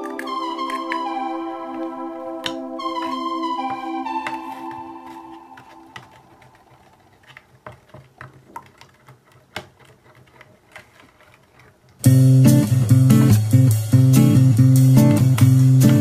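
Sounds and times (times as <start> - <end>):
music: 0.0 - 6.6, 12.0 - 16.0
loud guitar music: 12.0 - 16.0.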